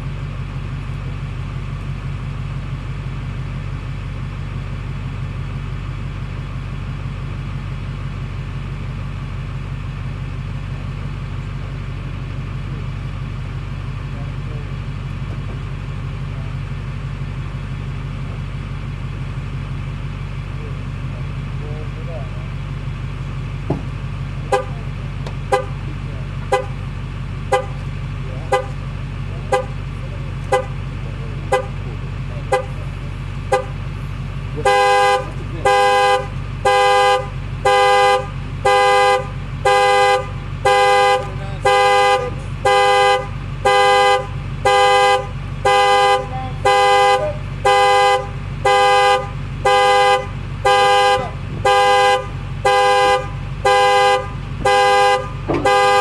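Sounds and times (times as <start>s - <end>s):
engine idling: 0.0s - 56.0s
car horn blasts: 24.4s - 56.0s.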